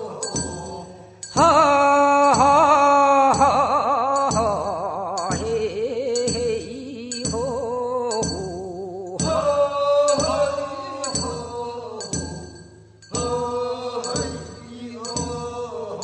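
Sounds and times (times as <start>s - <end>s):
bell ringing in time: 0.0s - 2.8s, 10.1s - 16.0s
person chanting held notes: 0.0s - 16.0s.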